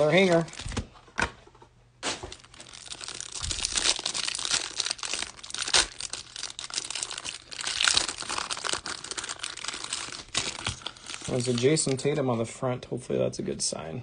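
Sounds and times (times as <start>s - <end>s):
plastic wrapper ripping: 0.0s - 0.9s, 2.0s - 12.1s
plastic wrapper crinkling: 0.0s - 1.0s, 2.0s - 12.1s.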